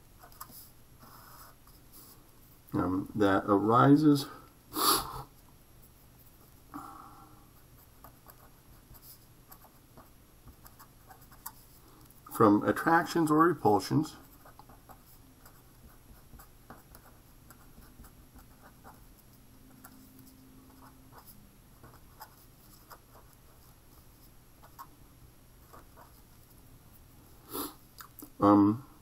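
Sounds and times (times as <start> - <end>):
pen scratching on paper: 7.8 - 11.7, 14.3 - 24.9, 25.6 - 26.5.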